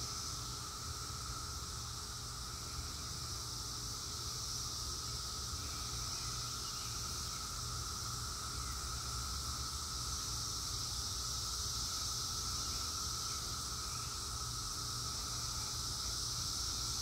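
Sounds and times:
cicadas droning: 0:00.0 - 0:17.0.

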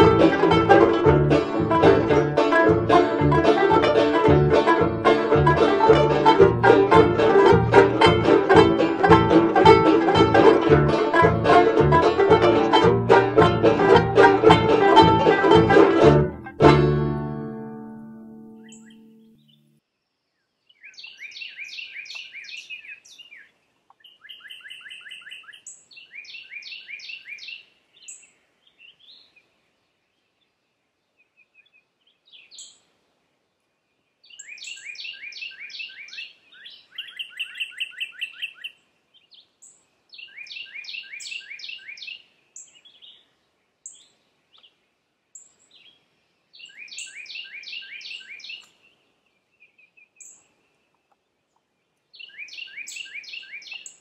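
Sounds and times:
high bird chirps: 0:18.5 - 0:19.7
songbird whistling: 0:18.6 - 0:19.7, 0:46.6 - 0:48.7, 0:52.2 - 0:53.9.

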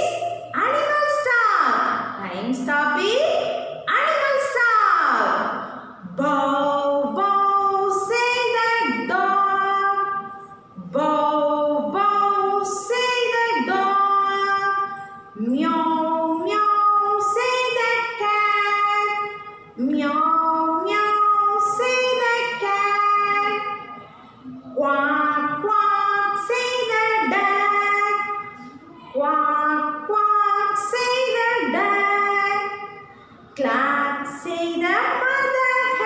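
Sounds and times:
woman singing unaccompanied: 0:06.1 - 0:23.8, 0:24.8 - 0:32.9.

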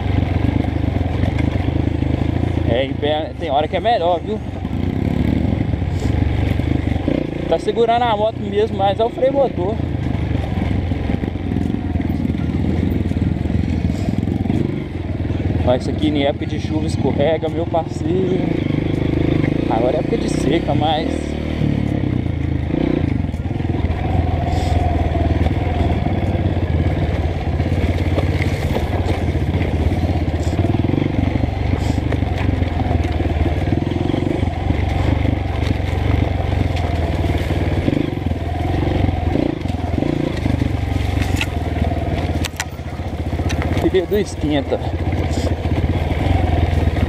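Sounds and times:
motorcycle engine running at low revs: 0:00.0 - 0:47.0
tyres crunching over loose ground: 0:23.1 - 0:47.0.

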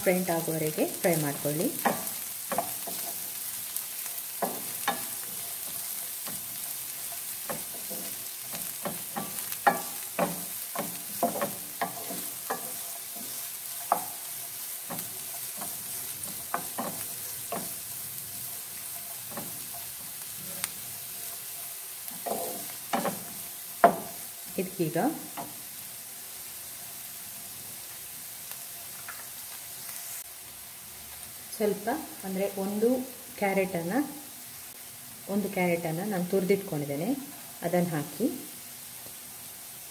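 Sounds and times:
onions sizzling in a pan: 0:00.0 - 0:39.9
spatula scraping and knocking pan: 0:01.1 - 0:24.6.

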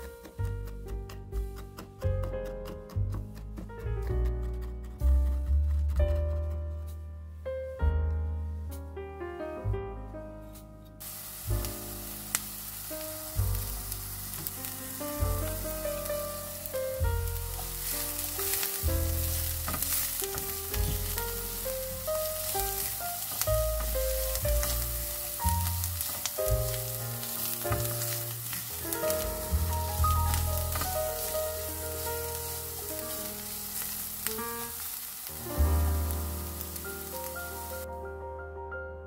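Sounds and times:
onion and garlic sizzling in oil: 0:00.0 - 0:01.6, 0:11.0 - 0:37.9.

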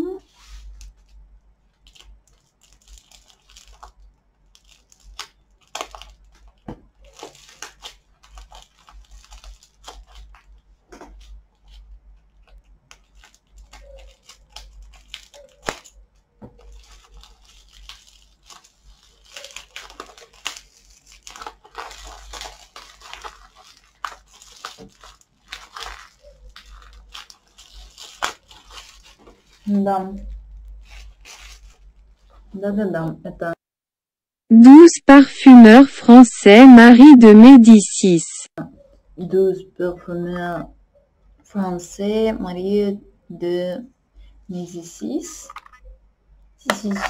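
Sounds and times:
tape and wrapping crinkling: 0:00.0 - 0:32.6.

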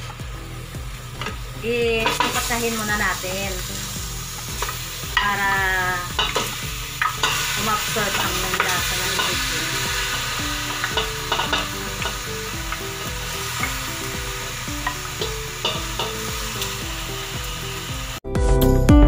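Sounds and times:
meat sizzling in a pot: 0:00.0 - 0:18.2
background music: 0:00.0 - 0:19.0.

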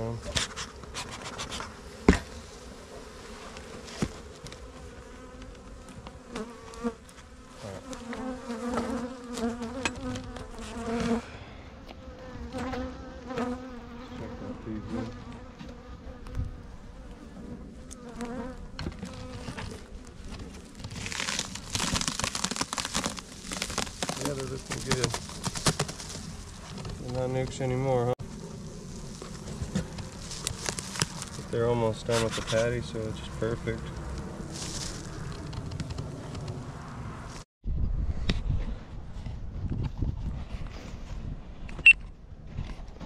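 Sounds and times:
bees buzzing: 0:00.7 - 0:27.0
rustling noise: 0:18.9 - 0:27.4, 0:28.2 - 0:32.8, 0:34.0 - 0:36.5.

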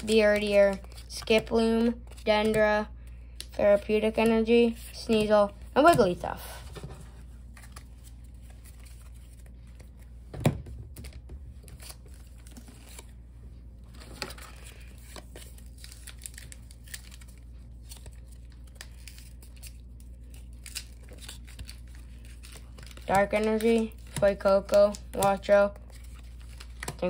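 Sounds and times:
cards being handled: 0:00.0 - 0:10.3, 0:10.9 - 0:13.2, 0:13.8 - 0:27.0
foil wrapper crinkling and tearing: 0:14.2 - 0:27.0.

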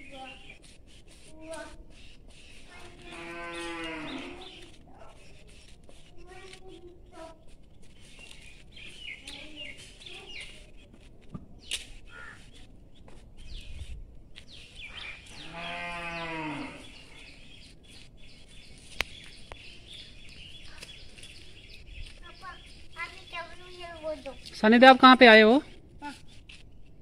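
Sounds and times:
animal bleating: 0:03.0 - 0:04.4, 0:15.4 - 0:17.0
faint bird chirps: 0:14.5 - 0:24.7.

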